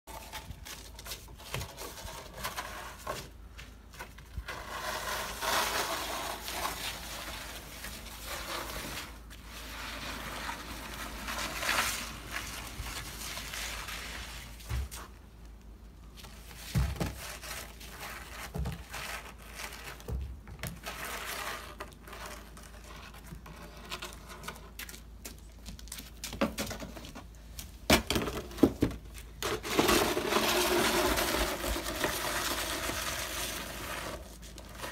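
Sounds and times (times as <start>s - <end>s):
shovel scraping slush on wood: 4.4s - 15.0s, 29.4s - 34.9s.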